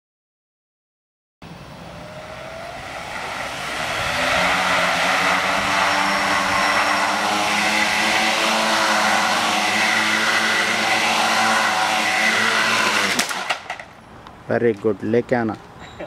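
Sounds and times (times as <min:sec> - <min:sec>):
quadcopter motors buzzing whine: 0:01.4 - 0:14.0.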